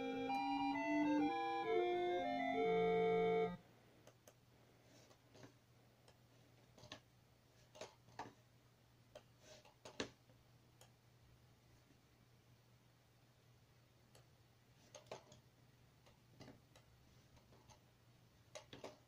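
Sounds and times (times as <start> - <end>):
synth tracker music: 0.0 - 3.6
faint steady hum: 0.0 - 19.0.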